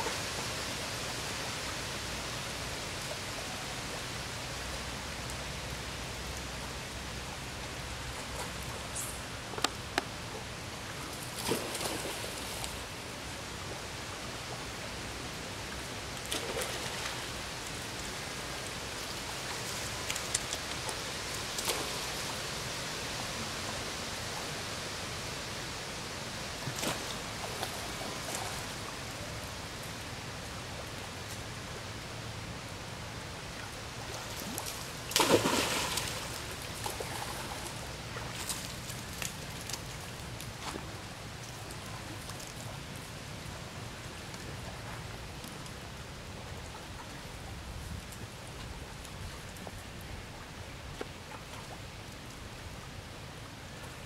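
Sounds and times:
outdoor background hiss: 0.0s - 54.0s.

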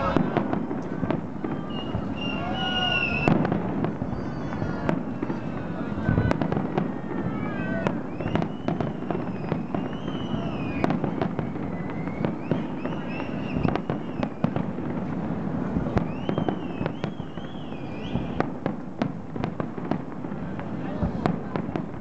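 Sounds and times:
fireworks bursting with bangs: 0.0s - 22.0s
high whistling tones: 1.4s - 3.4s, 8.0s - 14.5s, 16.1s - 18.4s.

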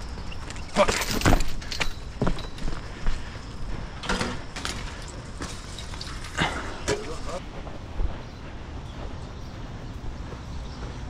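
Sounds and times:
chain-link fence rattling: 0.2s - 2.7s, 4.0s - 7.4s.

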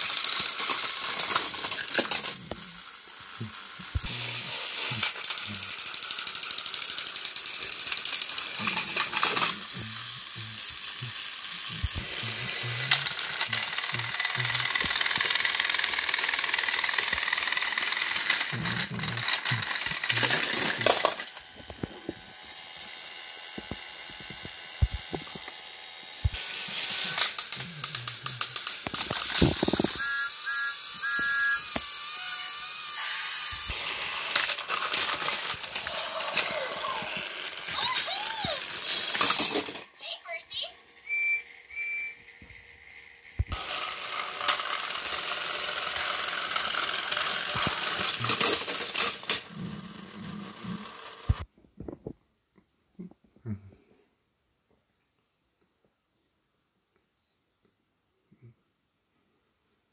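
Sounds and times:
plastic gears grinding and clicking: 0.0s - 30.2s, 31.0s - 39.9s, 41.1s - 51.5s
toy train motors whirring: 0.0s - 51.5s
warbling electronic tones: 41.1s - 42.3s.

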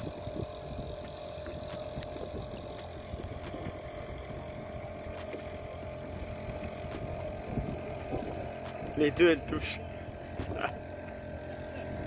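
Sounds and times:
steady hum: 0.0s - 12.0s
water lapping against boat hull: 0.0s - 12.0s.

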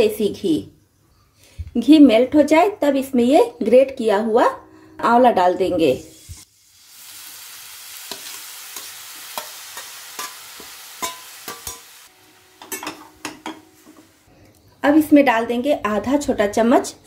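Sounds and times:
food sizzling in hot ghee: 6.0s - 14.3s
steel spatula clinking on pan: 9.4s - 12.0s, 12.6s - 14.0s.

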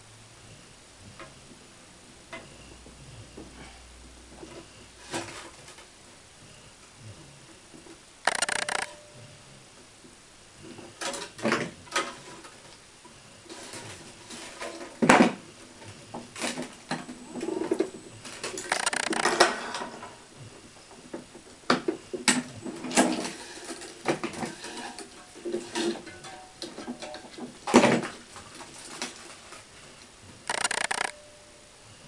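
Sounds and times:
sharp click: 8.2s - 9.0s, 18.7s - 19.4s, 30.5s - 31.2s.

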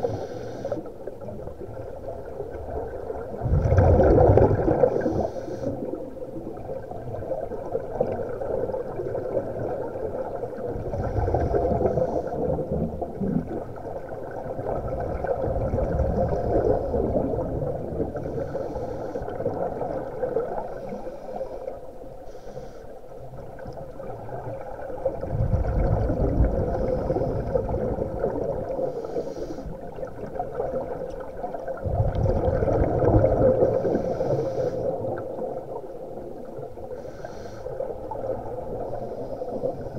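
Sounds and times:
regulator inhale hiss: 0.0s - 1.2s, 4.8s - 6.0s, 10.9s - 12.7s, 16.2s - 17.4s, 18.2s - 19.6s, 20.6s - 23.4s, 26.6s - 27.9s, 28.6s - 30.1s, 33.5s - 35.4s, 36.9s - 39.9s
exhale bubbling rumble: 0.8s - 21.9s, 23.3s - 39.9s.

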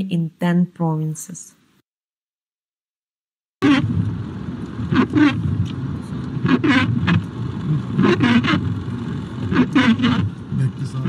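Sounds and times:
car rumble inside cabin: 3.6s - 11.0s.

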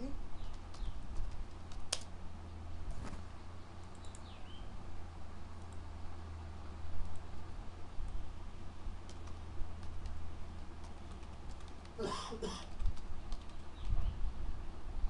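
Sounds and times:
steady low hum: 0.0s - 15.0s
keyboard keys clicking: 0.4s - 2.1s, 3.8s - 4.3s, 9.0s - 12.0s, 12.6s - 14.0s.

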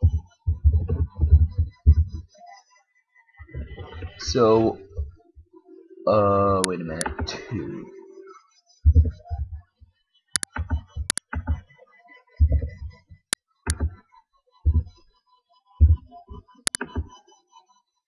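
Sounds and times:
soft dull low thumps: 0.0s - 2.3s, 3.5s - 5.5s, 8.9s - 9.7s, 12.4s - 14.0s, 14.6s - 15.0s, 15.8s - 17.1s
keyboard and mouse clicks: 6.6s - 7.5s, 10.4s - 11.7s, 12.4s - 14.0s, 15.8s - 17.2s.

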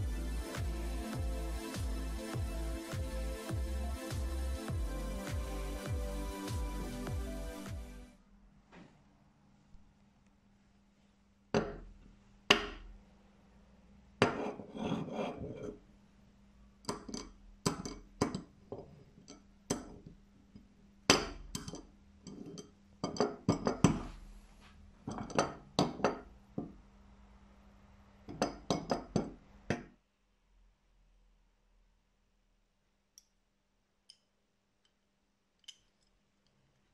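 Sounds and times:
magnet clacking against metal wrench: 35.6s - 36.2s.

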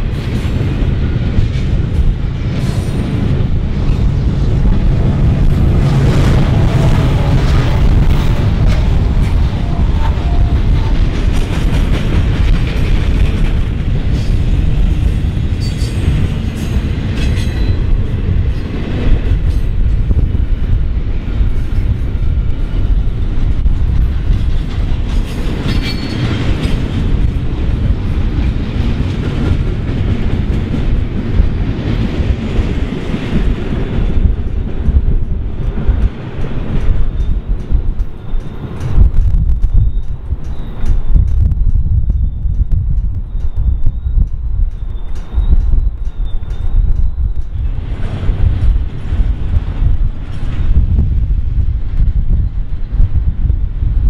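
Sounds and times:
freight train rumbling: 0.0s - 54.0s
wheels clacking over rail joints: 0.1s - 20.3s, 21.3s - 42.2s.

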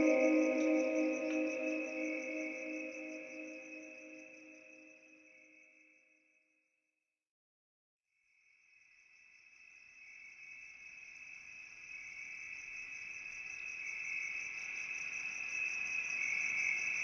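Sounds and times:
crickets trilling: 0.0s - 4.2s.

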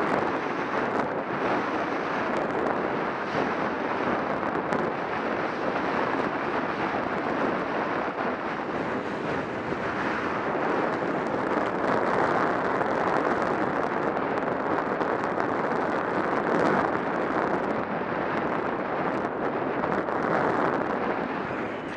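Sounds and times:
wind on microphone: 0.0s - 21.9s
skis scraping over snow: 8.7s - 11.8s.

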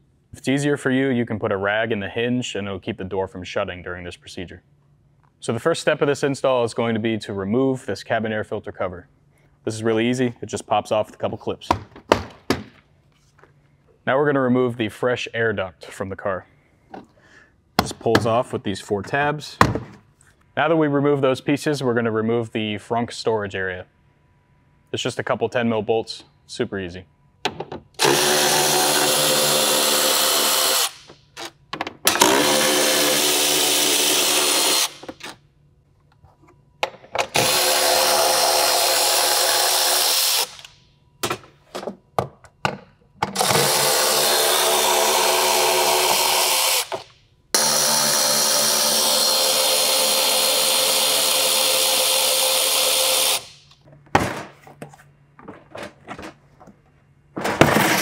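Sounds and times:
electric ratchet running: 28.0s - 31.0s, 32.1s - 35.0s, 37.4s - 40.7s, 43.4s - 47.0s, 47.6s - 53.6s.

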